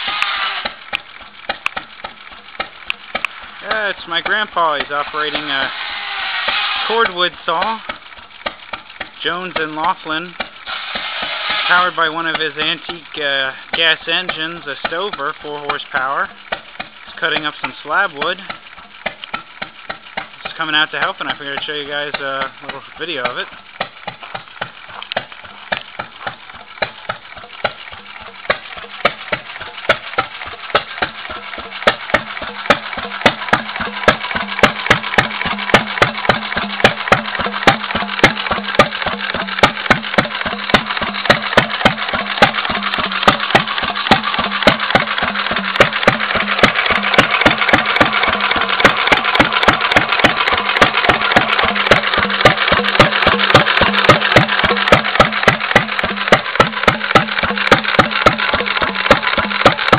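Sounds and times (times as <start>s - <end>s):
old gas engine popping: 0.0s - 59.9s.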